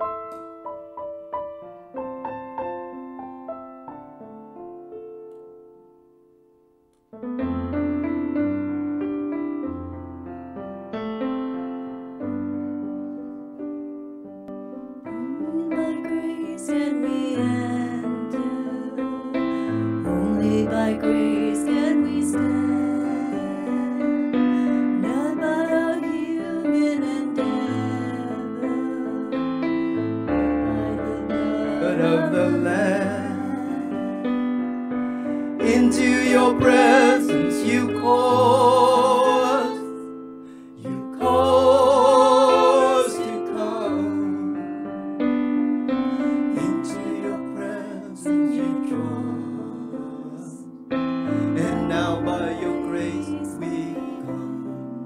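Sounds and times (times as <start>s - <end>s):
keyboard with piano sound: 0.0s - 55.0s
man and woman singing: 15.3s - 24.2s, 30.5s - 34.2s, 35.6s - 40.0s, 40.8s - 44.7s, 46.2s - 50.6s, 51.4s - 55.0s.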